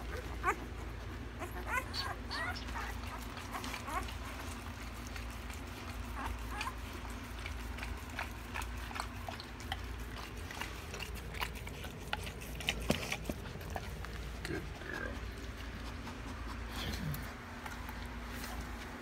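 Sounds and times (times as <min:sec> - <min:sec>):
puppies squeaking: 0:00.0 - 0:14.1
puppy mouth clicking and smacking: 0:00.0 - 0:19.0
steady low hum: 0:00.0 - 0:19.0.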